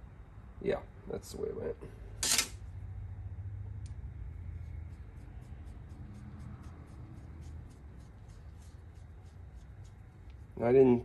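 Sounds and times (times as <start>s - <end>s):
steady low hum: 0.0s - 11.0s.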